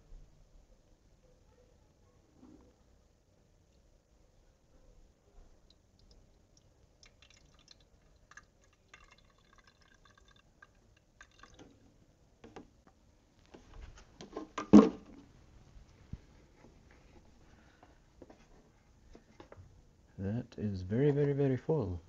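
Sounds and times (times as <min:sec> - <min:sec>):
coolant trickling and dripping: 0:05.6 - 0:11.9.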